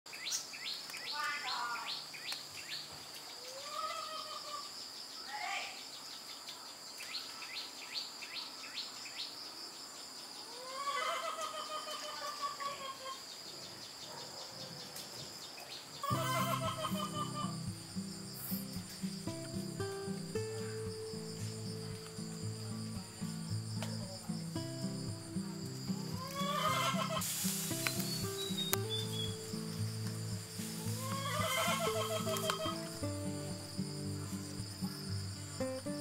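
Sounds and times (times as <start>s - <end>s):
insects droning: 0.1s - 36.0s
birds chirping and calling: 11.2s - 36.0s
background music: 16.0s - 36.0s.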